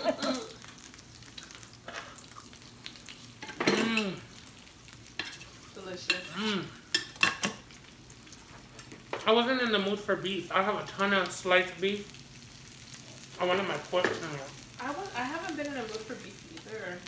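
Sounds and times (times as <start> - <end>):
meat sizzling on grill: 0.0 - 17.0.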